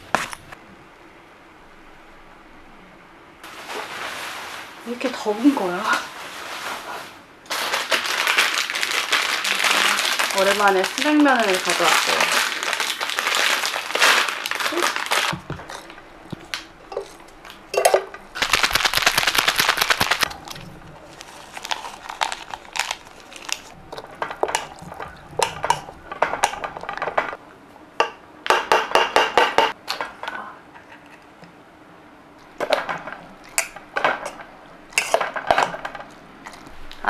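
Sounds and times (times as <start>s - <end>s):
dishes and utensils clinking: 16.9s - 18.2s, 32.6s - 36.1s.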